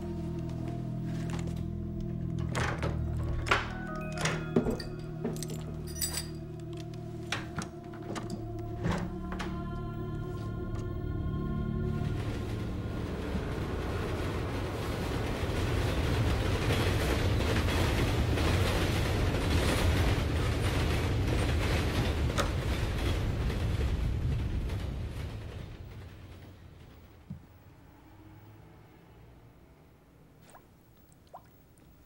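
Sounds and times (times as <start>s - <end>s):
deep noisy rumble: 4.8s - 26.8s.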